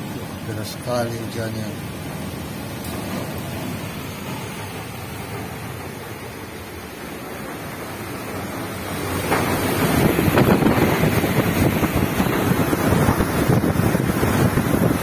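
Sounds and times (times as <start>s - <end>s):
strong gusty wind on microphone: 6.1s - 15.0s.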